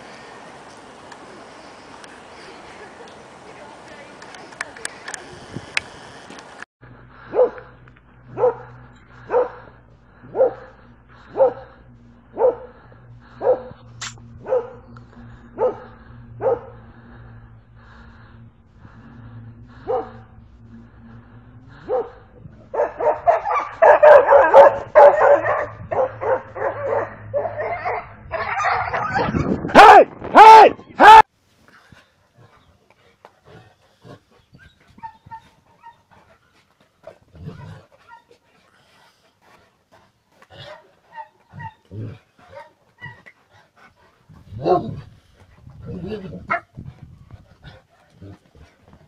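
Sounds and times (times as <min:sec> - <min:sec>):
dog barking and yelping: 0:21.9 - 0:30.0, 0:34.6 - 0:36.2, 0:37.4 - 0:38.4, 0:40.6 - 0:43.4.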